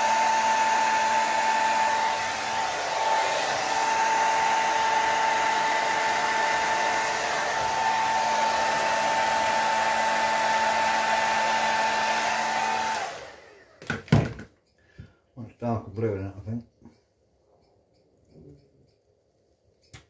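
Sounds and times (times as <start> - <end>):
hair dryer blowing: 0.0 - 14.0.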